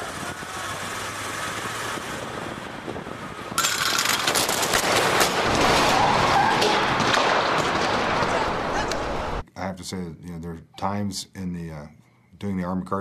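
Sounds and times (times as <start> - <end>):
vehicle running: 0.0 - 7.0
loud crashing with rapid cracks: 3.6 - 9.4.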